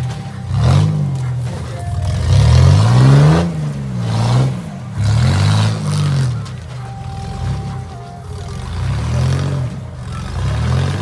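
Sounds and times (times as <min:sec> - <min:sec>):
buggy engine revving: 0:00.0 - 0:11.0.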